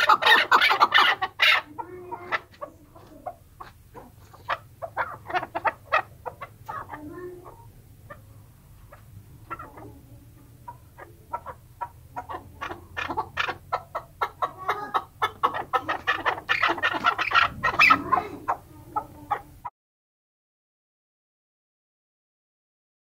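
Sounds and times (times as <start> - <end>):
partridge calling: 0.0 - 8.3, 10.7 - 19.6.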